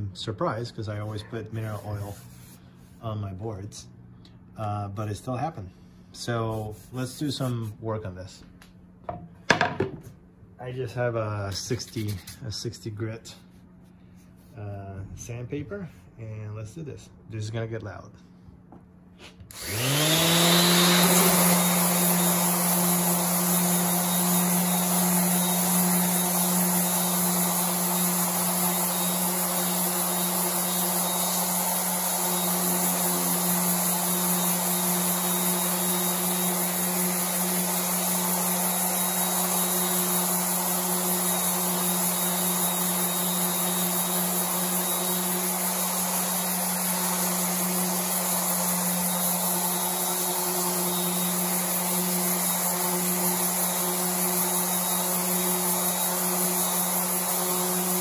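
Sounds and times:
sandpaper hissing on wood: 0:00.8 - 0:03.1, 0:06.2 - 0:07.7
orbital sander motor humming: 0:19.5 - 0:58.0.

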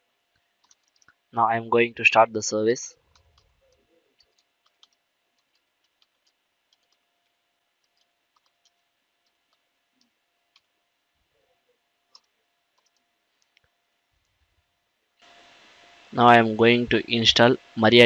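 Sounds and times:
keyboard keystrokes: 0:03.2 - 0:07.0.

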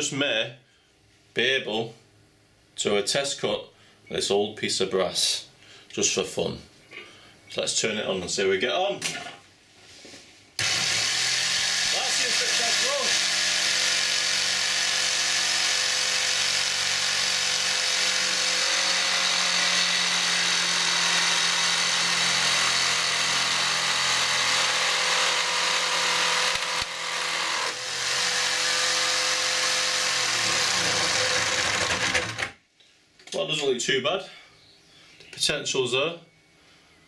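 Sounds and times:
jigsaw sawing through metal: 0:10.6 - 0:32.6.

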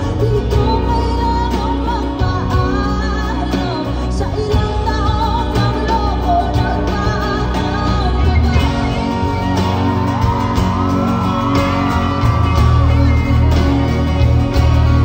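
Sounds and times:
acoustic guitar: 0:00.0 - 0:15.0
live band music: 0:00.0 - 0:15.0
heavy bass line: 0:07.2 - 0:15.0
crowd whooping and shouting: 0:08.5 - 0:15.0.

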